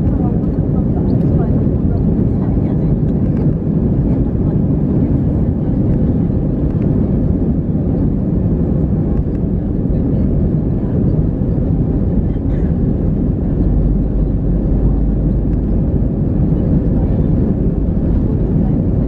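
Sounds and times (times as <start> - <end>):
jet engines rumbling: 0.0 - 19.0.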